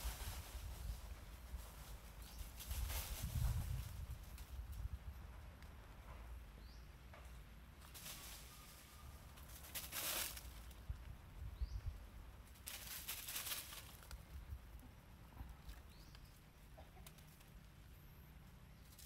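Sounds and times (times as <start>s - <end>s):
rustling among dry leaves: 0.0s - 4.9s, 7.8s - 11.1s, 12.4s - 14.6s.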